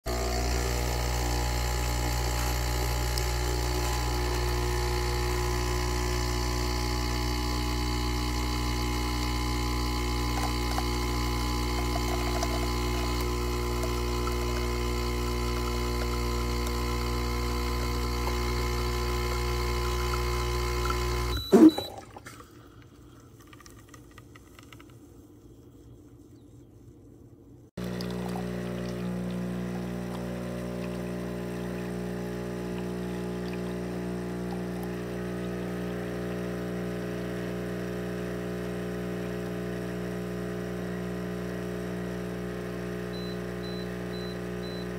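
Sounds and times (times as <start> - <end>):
espresso machine pump humming: 0.1 - 22.0, 27.8 - 44.9.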